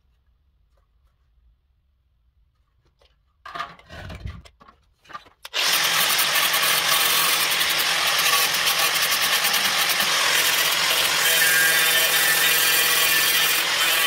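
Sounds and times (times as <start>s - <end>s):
knocks and scrapes: 2.4s - 5.5s
angle grinder grinding steel: 5.5s - 14.0s.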